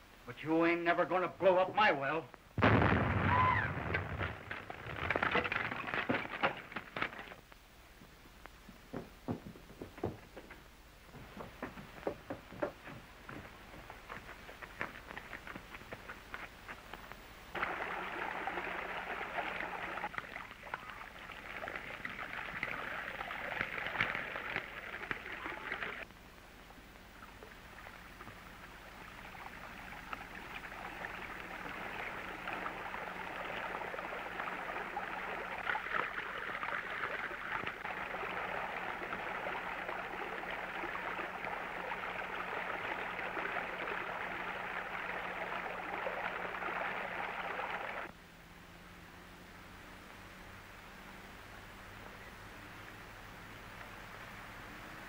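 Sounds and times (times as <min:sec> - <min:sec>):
rushing water: 0:17.5 - 0:26.0, 0:27.3 - 0:48.1.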